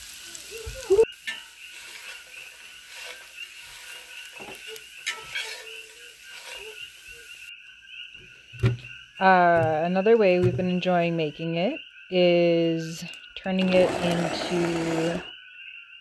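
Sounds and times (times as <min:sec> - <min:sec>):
food sizzling in a skillet: 0:00.0 - 0:07.5
metal spatula scraping: 0:01.2 - 0:07.4.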